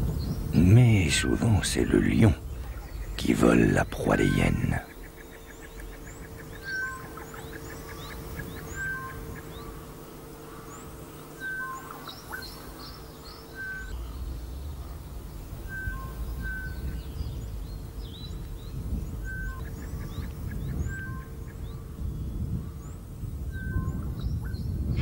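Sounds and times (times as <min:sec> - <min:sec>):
low rumble: 0:00.0 - 0:06.6, 0:13.7 - 0:25.0
steady low hum: 0:00.0 - 0:25.0
high bird chirps: 0:01.0 - 0:09.8, 0:10.8 - 0:22.5.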